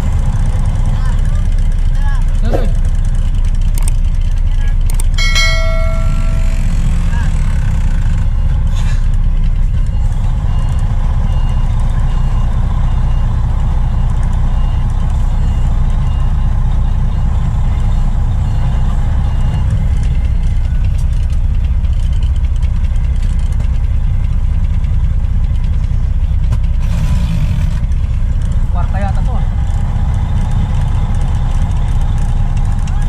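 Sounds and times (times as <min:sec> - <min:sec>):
truck engine rumbling: 0:00.0 - 0:33.0
reversing alarm beeping: 0:05.2 - 0:07.4.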